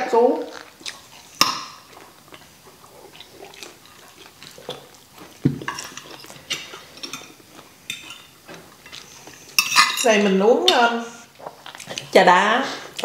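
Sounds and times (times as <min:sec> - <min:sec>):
chewing: 0:00.4 - 0:09.9, 0:11.2 - 0:12.2
cutlery clicking against plates: 0:05.6 - 0:08.3, 0:09.6 - 0:10.8.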